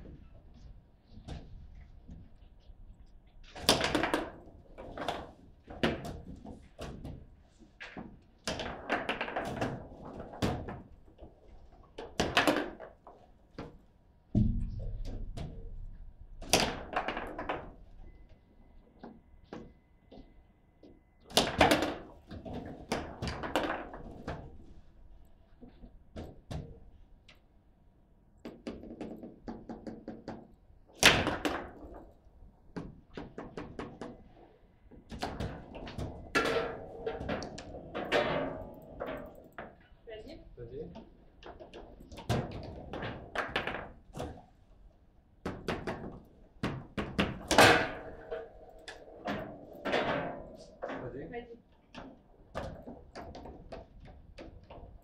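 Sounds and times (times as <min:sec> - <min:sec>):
foosball ball knocking and clacking: 0:12.0 - 0:12.9, 0:16.4 - 0:17.9, 0:35.1 - 0:39.8, 0:45.5 - 0:51.0.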